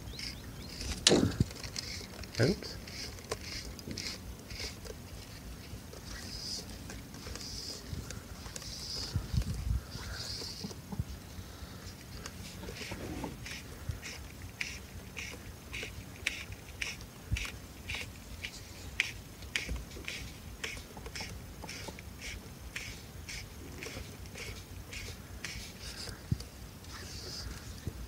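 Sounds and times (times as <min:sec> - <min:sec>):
fly line rasping through rod guides: 0:00.2 - 0:11.0.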